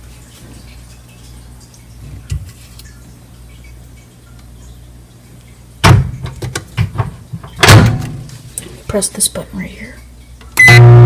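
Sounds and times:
microwave door thumping shut: 7.0 - 8.2.

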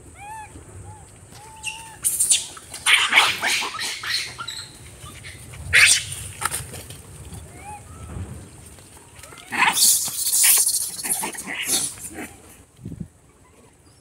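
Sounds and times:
soft short monkey calls: 0.2 - 6.2, 9.3 - 12.5
monkeys shrieking: 0.2 - 6.4, 7.5 - 8.1, 9.2 - 12.5.

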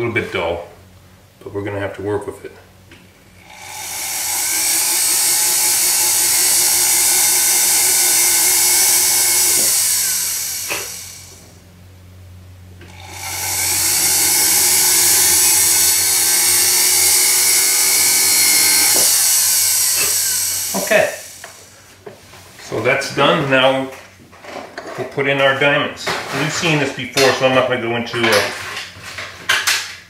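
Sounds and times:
high-pitched rotary drill whine: 3.4 - 11.6, 12.8 - 21.8.

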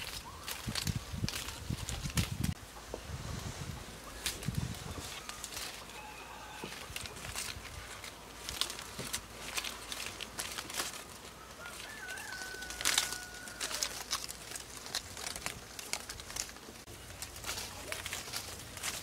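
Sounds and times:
chickens calling: 3.6 - 19.0
birds calling: 3.8 - 14.9
thin whistled call: 4.0 - 6.8.

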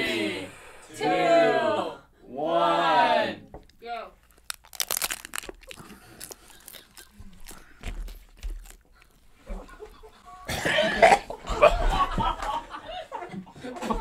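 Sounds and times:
people chewing crunchy taco shells: 3.6 - 10.4
loud coughing: 10.3 - 12.0.

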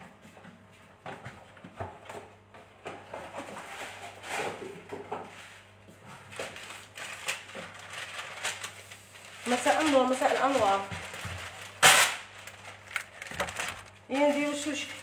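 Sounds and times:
objects being handled: 6.2 - 15.0.

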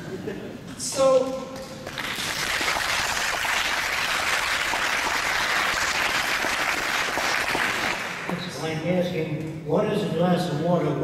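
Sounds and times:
audience applauding: 1.8 - 8.3.

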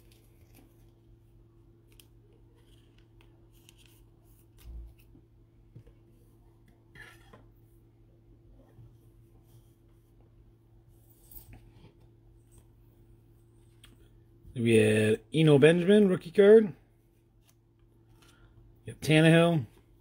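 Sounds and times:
steady low hum: 0.0 - 20.0
trading cards rustling and clicking: 1.8 - 5.2.

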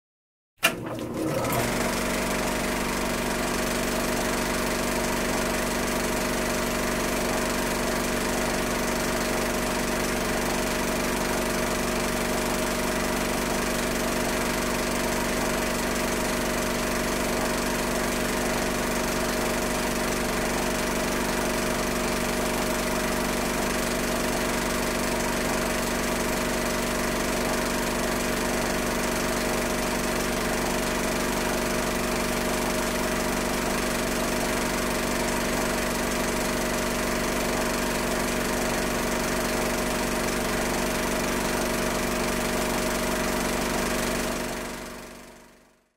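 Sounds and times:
projector switch click: 0.6 - 1.7
film projector whirring: 0.6 - 45.3.

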